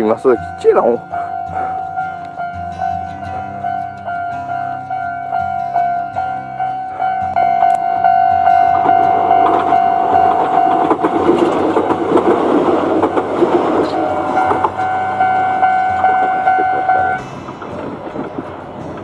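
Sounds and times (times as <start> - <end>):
level-crossing alarm ringing: 0.0 - 17.3
train wheels rumbling: 0.0 - 19.0.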